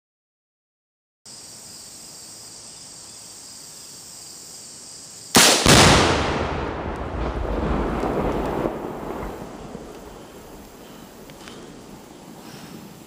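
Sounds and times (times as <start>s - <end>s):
insects chirring: 1.3s - 13.0s
rifle shot and explosion: 5.3s - 10.8s
echo across woods: 5.3s - 13.0s.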